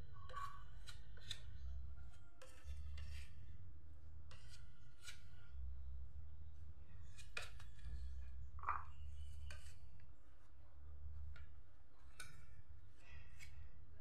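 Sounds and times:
hand tool scraping wood: 0:00.3 - 0:03.4.

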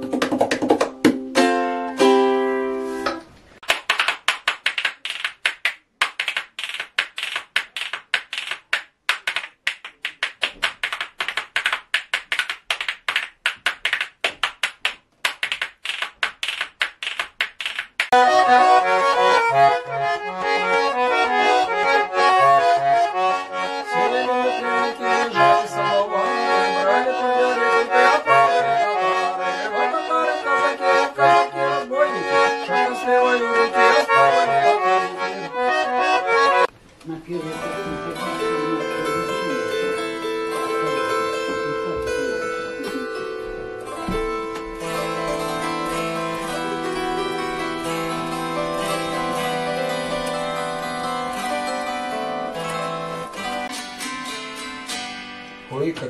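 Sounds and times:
button accordion folk tune: 0:01.0 - 0:03.2, 0:18.1 - 0:36.7, 0:37.3 - 0:53.8.

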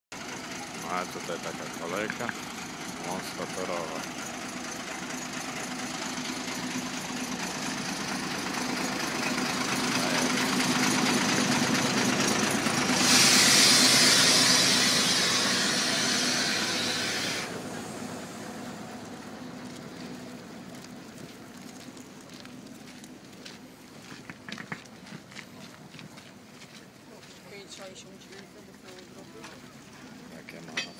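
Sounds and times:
diesel locomotive idling: 0:00.1 - 0:30.9
loud hiss: 0:12.8 - 0:18.4.

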